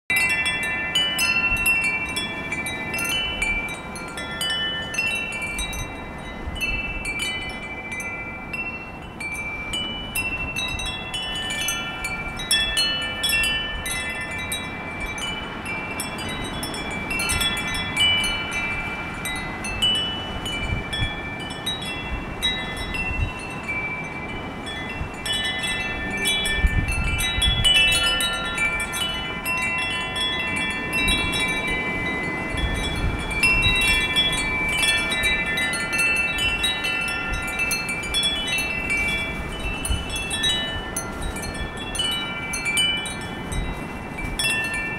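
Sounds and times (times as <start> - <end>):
low rumble of wind: 0.1 - 44.9
tubular wind chimes ringing: 0.1 - 44.9.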